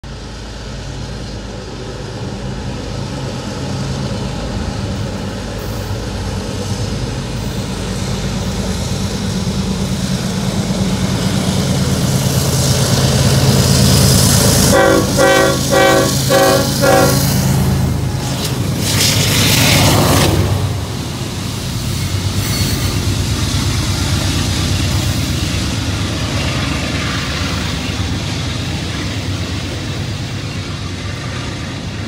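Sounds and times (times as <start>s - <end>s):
locomotive engine drone: 0.0s - 32.0s
train horn blasts: 14.6s - 17.7s.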